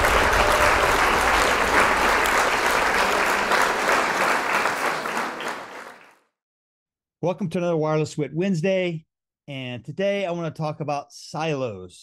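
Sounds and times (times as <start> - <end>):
audience applause: 0.0 - 6.2.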